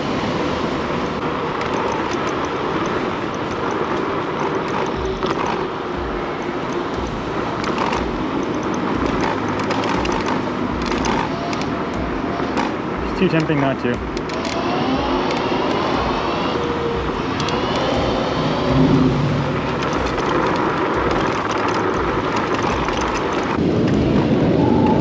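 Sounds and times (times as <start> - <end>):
road noise from scooter: 0.0 - 25.0
wind rush: 0.0 - 25.0.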